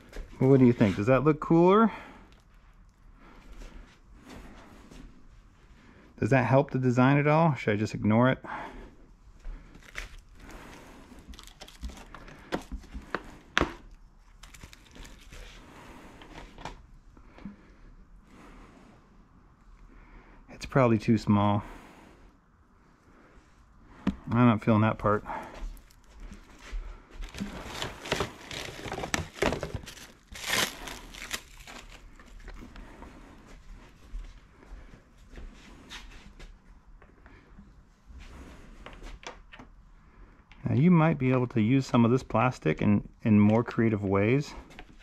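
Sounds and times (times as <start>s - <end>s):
plastic film rustling and crinkling: 9.7s - 15.6s, 25.7s - 32.7s.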